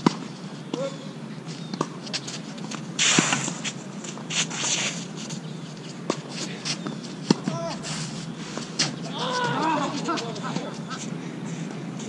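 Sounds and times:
shoes scuffing on court: 0:01.5 - 0:11.6.

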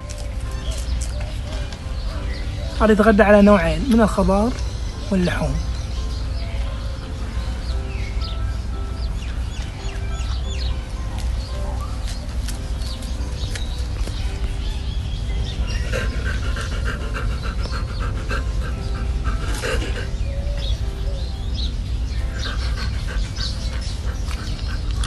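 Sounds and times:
bird chirps: 0:00.0 - 0:25.0
porcupine crunching and chewing: 0:22.9 - 0:25.0.

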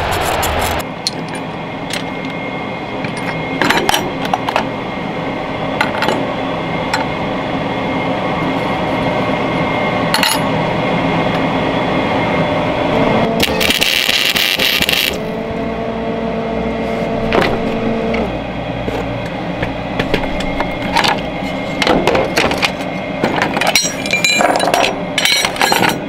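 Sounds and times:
steady hum: 0:00.0 - 0:26.0
welding arc hissing and crackling: 0:13.4 - 0:15.3
metal parts clinking on workbench: 0:23.4 - 0:26.0.

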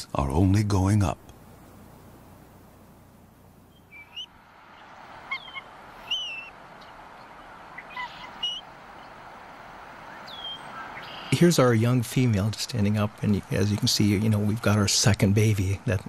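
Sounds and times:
background hiss: 0:00.0 - 0:16.0
eagles chirping: 0:01.3 - 0:16.0.

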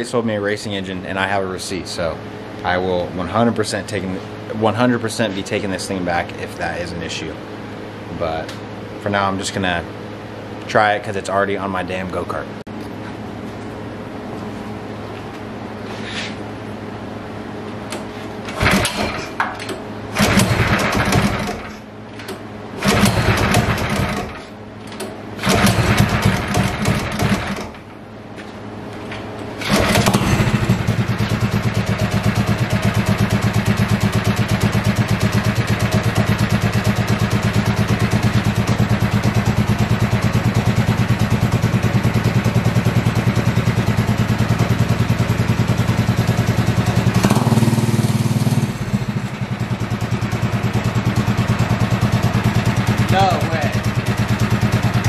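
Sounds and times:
kart engine starting and running: 0:18.4 - 0:24.5, 0:25.4 - 0:27.9, 0:29.6 - 0:55.0.

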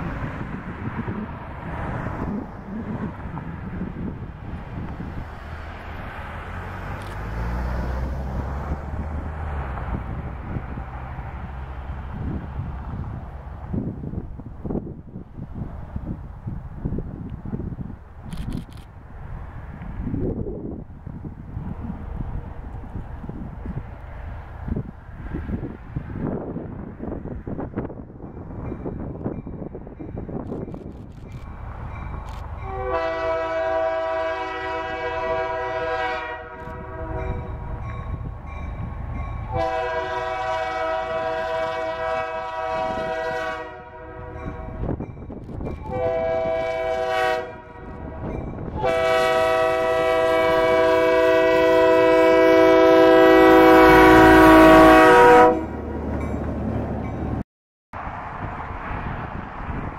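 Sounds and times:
train engine and wheels rumbling: 0:00.0 - 0:57.4, 0:58.0 - 0:59.9
locomotive air horn blasts: 0:32.6 - 0:37.5, 0:39.5 - 0:44.7, 0:45.9 - 0:55.8.

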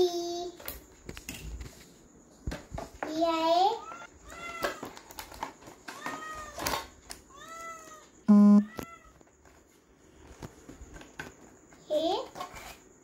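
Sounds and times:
loud flat buzz: 0:08.3 - 0:08.7.

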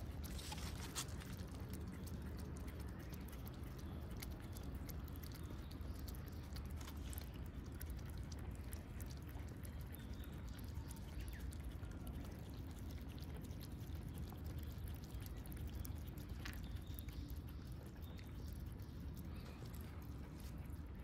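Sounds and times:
cats lapping milk: 0:00.0 - 0:21.0
low background rumble: 0:00.0 - 0:21.0.

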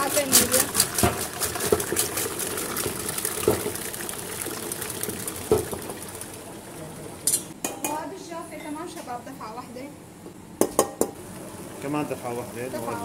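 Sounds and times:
stand mixer beating batter: 0:00.0 - 0:05.9.

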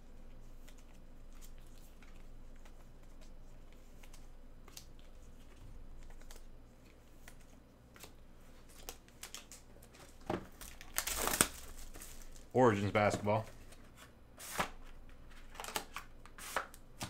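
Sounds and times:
plastic wrap crinkling and tearing: 0:08.6 - 0:13.8.

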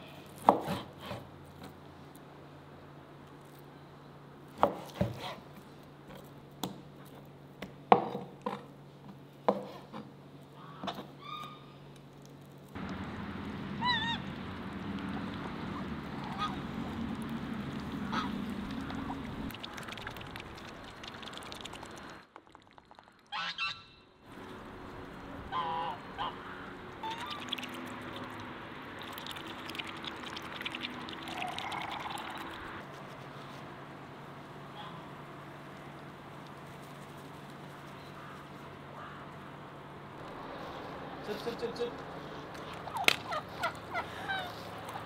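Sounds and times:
outdoor background noise: 0:00.0 - 0:45.0
poultry calling: 0:25.5 - 0:27.7.

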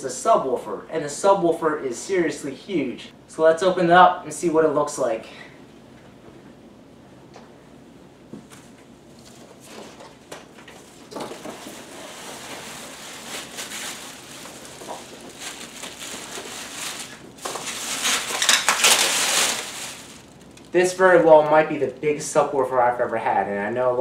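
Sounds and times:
plastic wrapping crinkling: 0:09.2 - 0:23.1.

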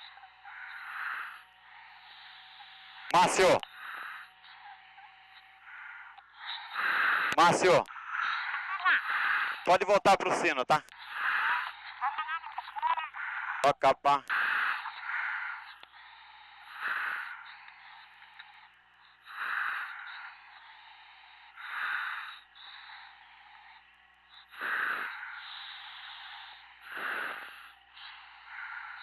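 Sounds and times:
diver breathing through regulator: 0:14.3 - 0:29.0
steady hiss of gas: 0:14.3 - 0:29.0.

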